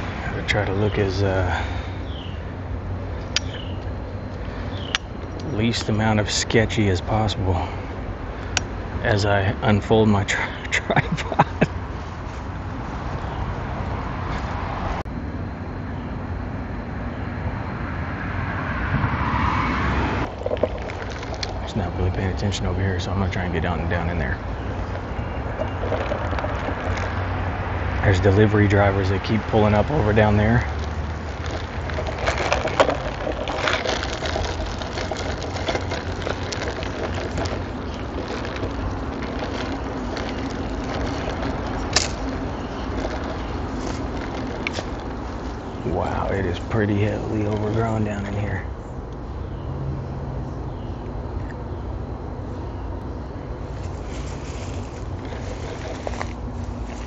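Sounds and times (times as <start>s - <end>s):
leaves and branches rustling: 0.0s - 9.3s, 20.0s - 48.7s, 53.4s - 57.0s
twigs crackling: 0.0s - 14.8s, 20.0s - 49.2s, 53.4s - 57.0s
road traffic rumble: 0.0s - 57.0s
vehicle passing by: 11.4s - 15.0s, 16.8s - 52.8s.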